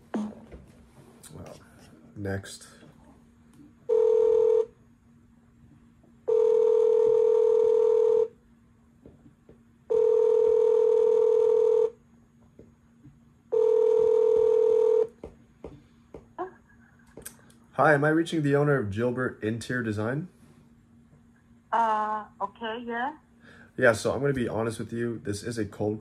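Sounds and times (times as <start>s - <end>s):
telephone ringback tone: 3.9s - 4.7s, 6.3s - 8.3s, 9.9s - 12.0s, 13.5s - 15.1s.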